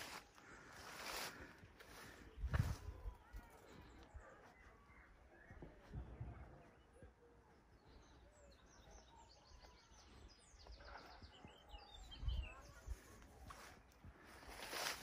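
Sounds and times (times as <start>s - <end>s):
quiet outdoor ambience: 0.0s - 15.0s
bird chirping: 4.0s - 14.9s
rustling noise: 13.5s - 15.0s.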